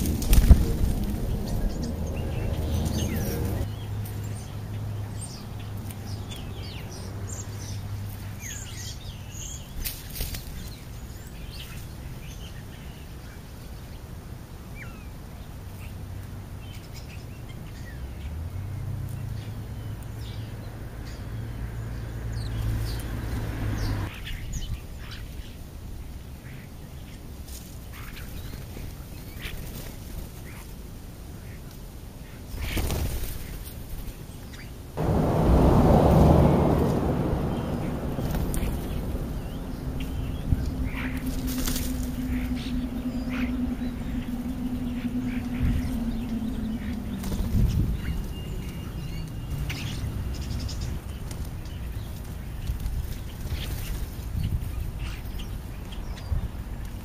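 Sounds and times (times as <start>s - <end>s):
low hum: 0.0s - 4.4s, 35.0s - 52.0s
starlings chirping and whistling: 0.0s - 13.4s, 35.9s - 52.2s.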